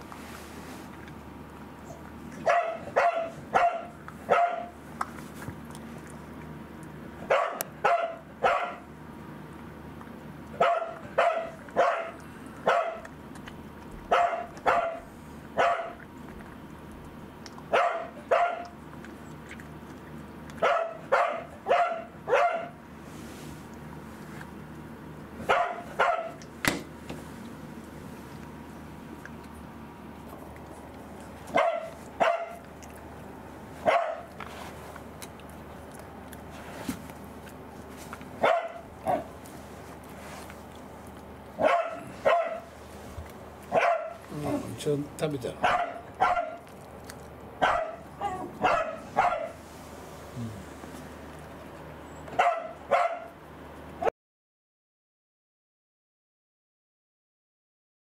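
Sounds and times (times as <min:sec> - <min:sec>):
dog barking: 0:02.4 - 0:04.8, 0:07.2 - 0:08.9, 0:10.6 - 0:13.1, 0:14.0 - 0:16.0, 0:17.7 - 0:18.8, 0:20.6 - 0:22.8, 0:25.4 - 0:26.4, 0:31.5 - 0:32.6, 0:33.8 - 0:34.4, 0:38.4 - 0:39.3, 0:41.6 - 0:42.7, 0:43.7 - 0:44.6, 0:45.6 - 0:46.7, 0:47.6 - 0:49.6, 0:52.3 - 0:53.4.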